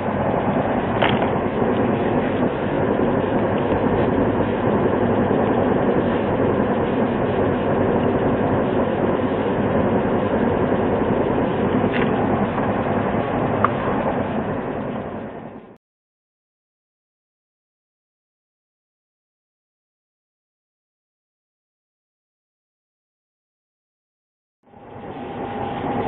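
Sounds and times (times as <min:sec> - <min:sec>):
steady rumbling: 0:00.0 - 0:15.8, 0:24.7 - 0:26.0.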